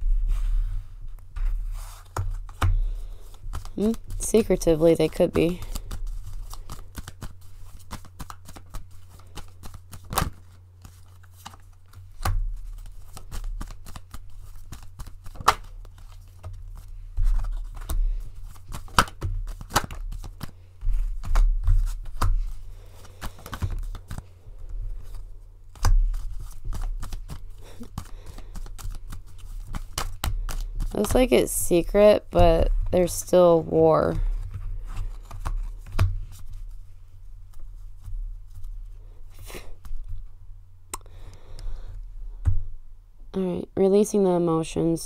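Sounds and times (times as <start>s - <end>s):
steady low hum: 0.0s - 45.0s
cards clicking and snapping: 5.6s - 24.3s, 25.1s - 31.1s.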